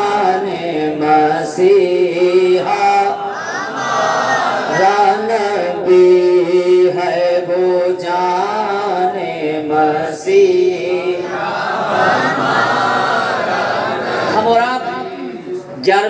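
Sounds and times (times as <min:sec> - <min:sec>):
man singing into a microphone: 0:00.0 - 0:03.3, 0:04.7 - 0:11.3.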